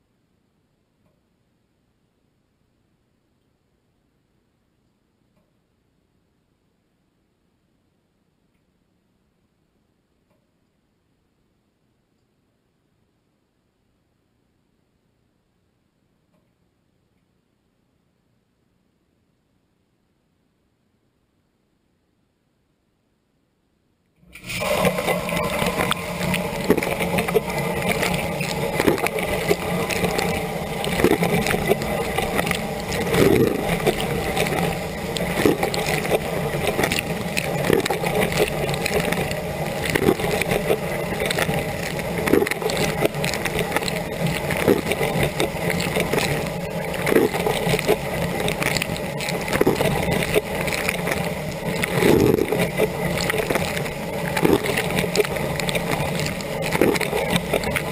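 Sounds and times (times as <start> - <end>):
dishwasher pump humming: 24.2 - 57.9
water spraying inside dishwasher: 24.3 - 57.9.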